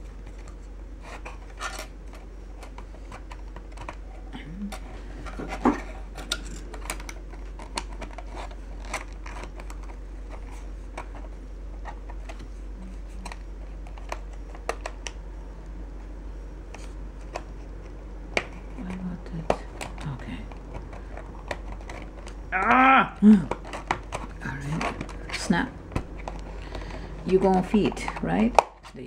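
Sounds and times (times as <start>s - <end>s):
low steady hum: 0.0s - 29.0s
plastic parts clicking: 1.1s - 4.0s, 4.7s - 12.4s, 13.2s - 15.2s, 16.7s - 22.8s, 23.4s - 29.0s.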